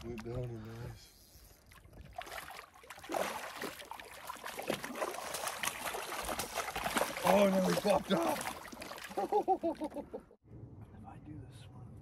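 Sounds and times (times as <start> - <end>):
fish thrashing and splashing: 1.6 - 10.0.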